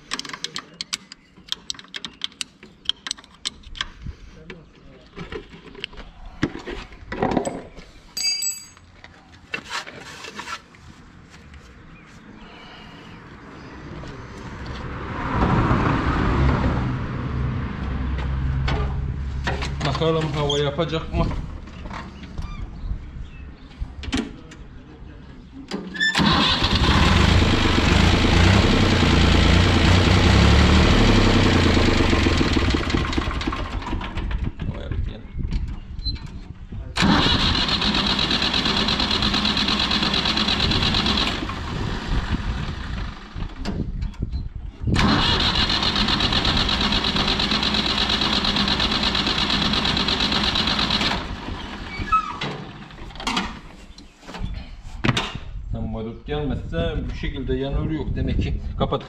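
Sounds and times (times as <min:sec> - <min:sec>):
short metallic ring: 0:08.2 - 0:08.8
diesel tractor engine turning over: 0:26.0 - 0:34.5, 0:36.9 - 0:44.0, 0:44.9 - 0:53.3.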